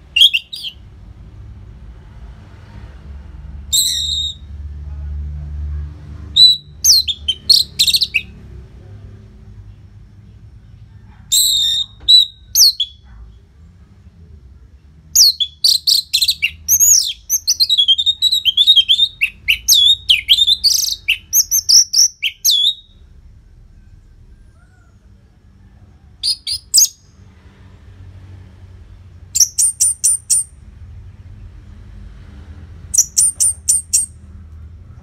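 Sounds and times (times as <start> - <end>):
bird singing whistles and trills: 0.1 - 0.8, 3.7 - 4.5, 6.4 - 8.3, 11.3 - 13.0, 15.2 - 23.0, 29.4 - 30.5, 33.0 - 34.2.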